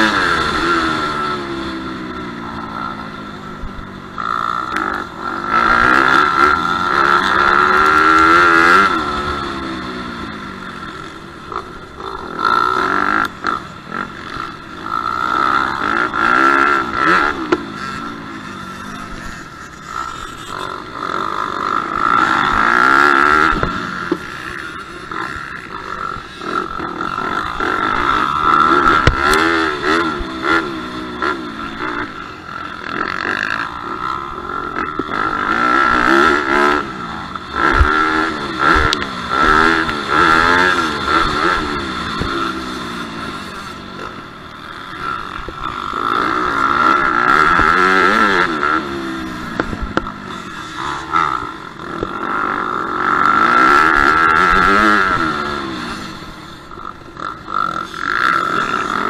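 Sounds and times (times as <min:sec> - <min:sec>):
motocross bike engine revving: 0:00.0 - 0:59.0.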